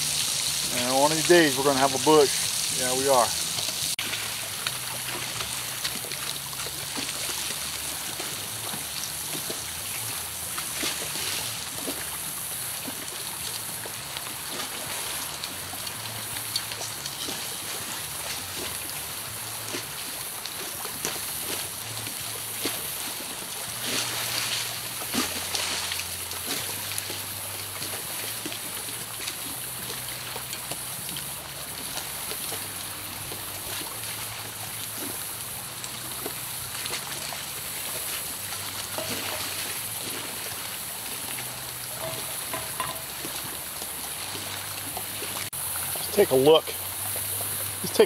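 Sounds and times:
fish sizzling in hot oil: 0.0s - 48.0s
metal clicking on pan: 42.0s - 43.1s.

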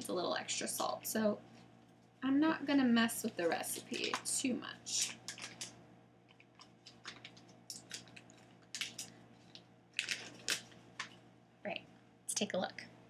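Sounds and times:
sharp crinkles: 4.9s - 5.7s, 6.3s - 11.2s.

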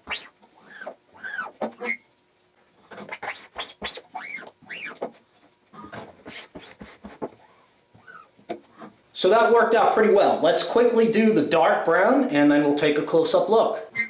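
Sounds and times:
tape ripping off a roll: 0.0s - 2.0s, 2.9s - 5.1s, 5.9s - 7.4s.

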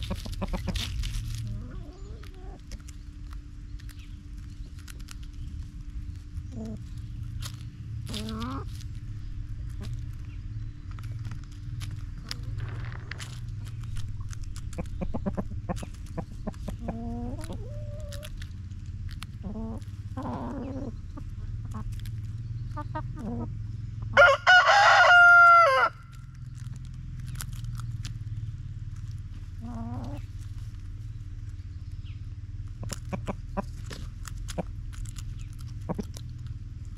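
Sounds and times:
chickens clucking: 0.0s - 36.9s
loud drawn-out chicken call: 24.1s - 26.1s.

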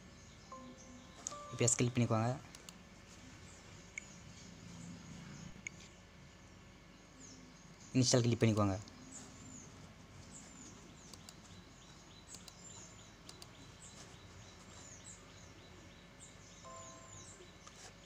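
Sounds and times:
small birds chirping: 0.0s - 18.0s
device-connected chime: 0.5s - 2.4s, 16.7s - 17.6s
faint clicks: 10.2s - 11.6s, 12.2s - 13.9s.

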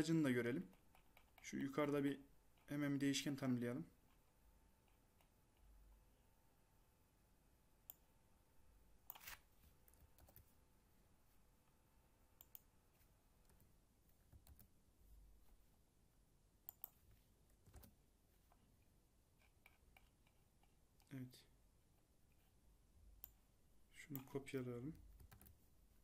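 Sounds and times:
keyboard and mouse clicks: 9.1s - 10.5s, 12.4s - 12.7s, 14.3s - 14.7s, 16.7s - 18.0s, 19.4s - 21.1s, 24.1s - 25.6s.

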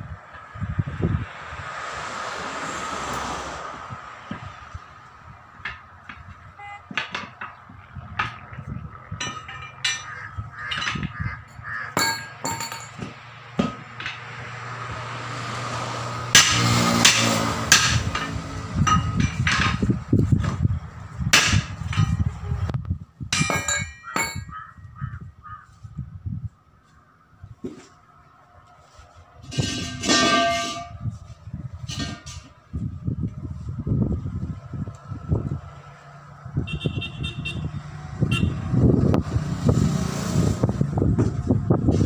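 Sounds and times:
tyre levers clinking on metal rim: 5.6s - 14.2s, 17.8s - 19.8s, 23.3s - 24.6s, 29.5s - 31.0s.

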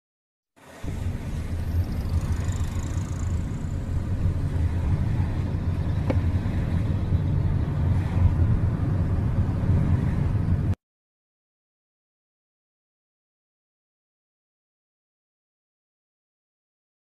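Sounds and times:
road and engine rumble: 0.6s - 10.8s.

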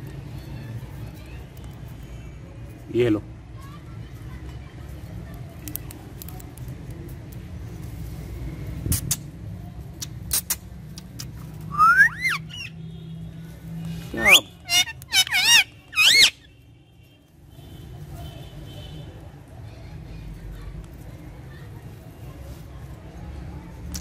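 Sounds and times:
parakeet shrill screeches: 11.7s - 12.8s, 14.2s - 16.5s.

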